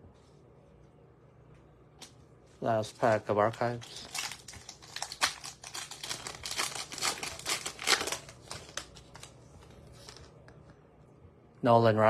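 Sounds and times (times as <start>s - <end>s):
wrapper crinkling as torn open: 2.9s - 9.4s.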